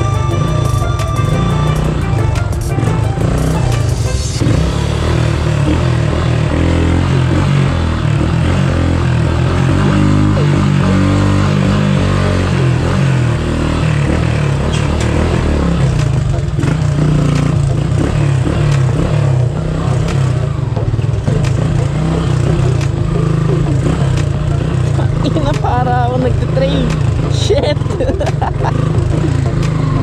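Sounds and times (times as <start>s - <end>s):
motorcycle engine revving: 0.0s - 30.0s
bike rattling and knocking: 12.6s - 30.0s.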